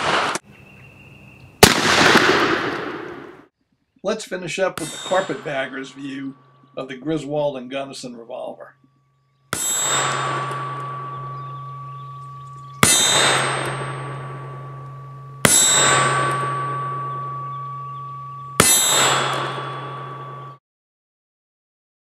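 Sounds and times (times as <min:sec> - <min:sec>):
revolver shots echoing: 0:01.6 - 0:03.4.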